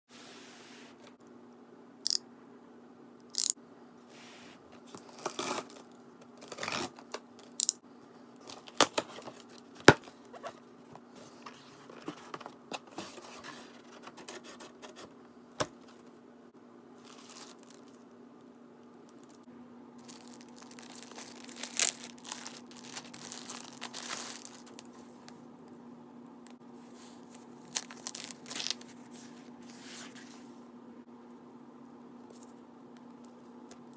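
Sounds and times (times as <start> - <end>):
knife slitting packing tape: 6.4 - 7.0
plastic bags crinkling: 17.0 - 18.1, 20.0 - 25.2, 27.6 - 29.0
foam wrap unrolling: 20.0 - 24.9, 27.7 - 28.9.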